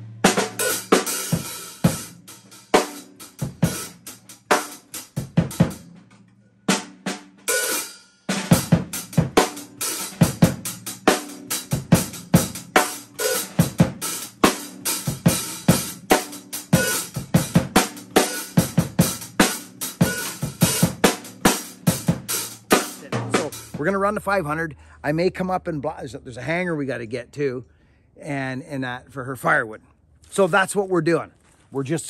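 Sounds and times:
drum kit played with sticks: 0.0 - 24.3.

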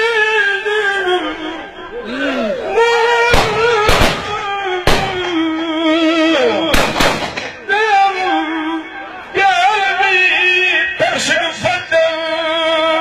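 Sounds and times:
man singing through microphone: 0.0 - 2.0, 2.6 - 13.0
sharp loud bangs: 3.3 - 5.5, 6.7 - 7.6.

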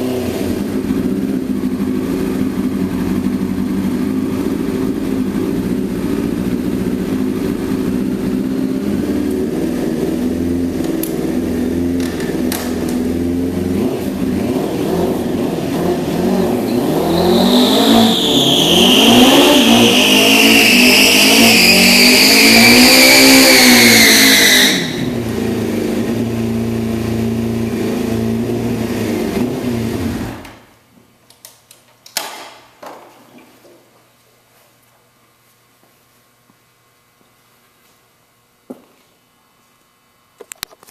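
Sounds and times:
motorcycle engine revving: 0.0 - 30.5.

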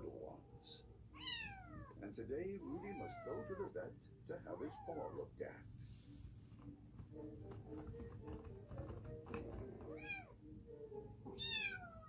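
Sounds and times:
soft background music: 0.0 - 12.0
kitten meowing: 1.1 - 2.0, 2.6 - 3.7, 9.9 - 10.4, 11.3 - 12.0.

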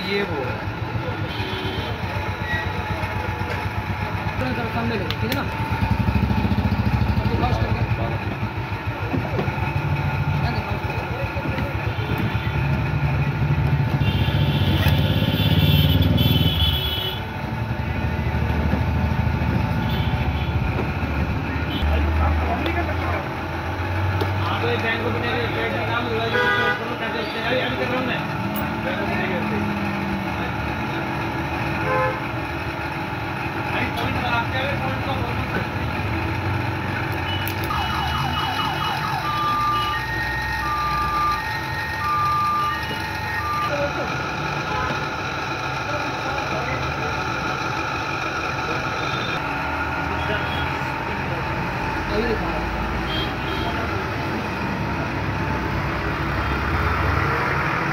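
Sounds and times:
electronic alarm chirps and beeps: 39.0 - 43.8.

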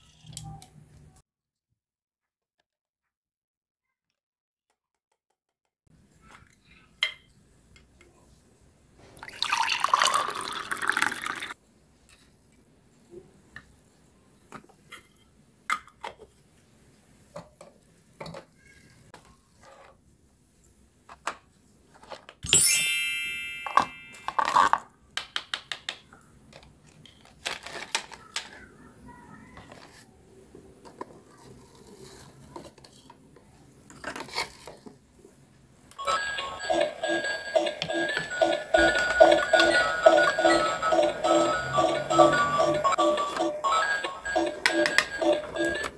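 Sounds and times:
liquid pouring and sloshing: 9.1 - 11.6
plastic toy pieces clicking: 24.3 - 28.6.

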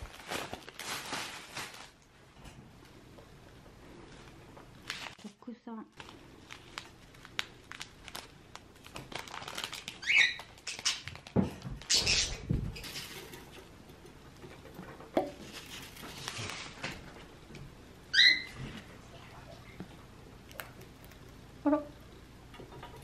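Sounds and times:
packet rustling: 0.0 - 2.1, 4.2 - 13.5, 15.4 - 17.1
parakeet chirping: 10.0 - 11.1, 18.1 - 18.6.

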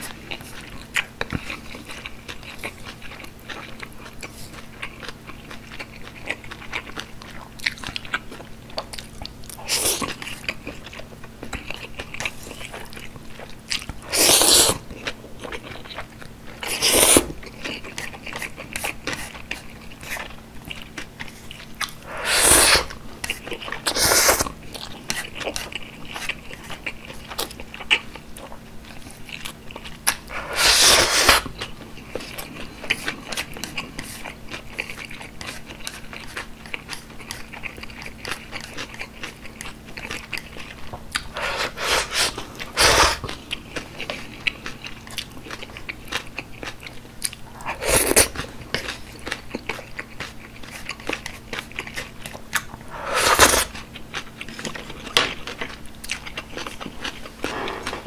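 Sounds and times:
wet chewing and mouth clicks: 0.0 - 58.0
loud noodle slurps: 14.1 - 14.8, 16.6 - 17.3, 22.1 - 23.0, 23.9 - 24.5, 30.3 - 31.5, 41.3 - 43.2, 47.6 - 48.3, 52.9 - 53.8.

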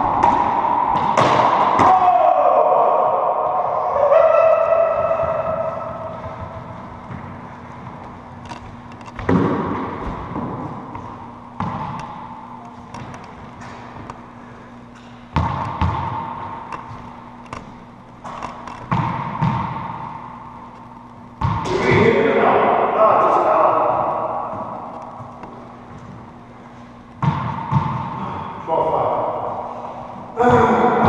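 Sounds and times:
racquetball smacks: 0.1 - 2.0, 9.2 - 14.2, 15.0 - 20.2.

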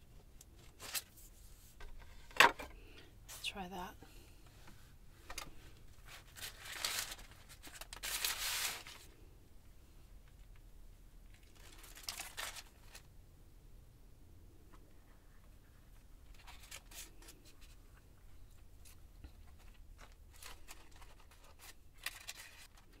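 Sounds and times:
paper rustling and crinkling: 0.5 - 2.6, 5.2 - 9.1, 11.3 - 13.1, 15.4 - 23.0.

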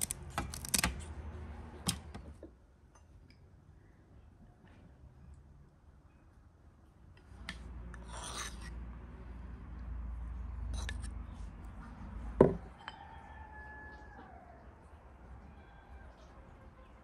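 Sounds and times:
metal spoon scraping a bowl: 7.9 - 8.8, 10.6 - 11.3.

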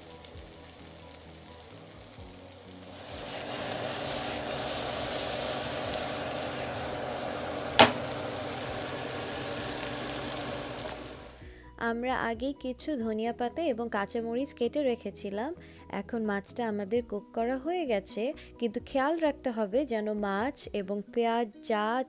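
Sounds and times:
food sizzling in a frying pan: 0.0 - 11.5
sharp knock: 7.8 - 8.1.

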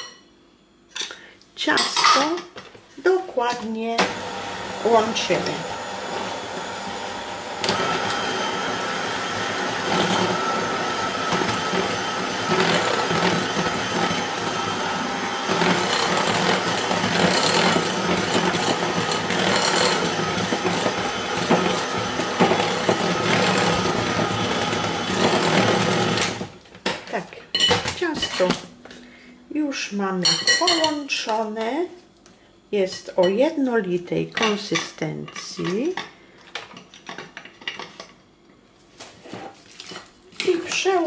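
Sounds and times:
electric hand mixer running: 4.0 - 26.6.

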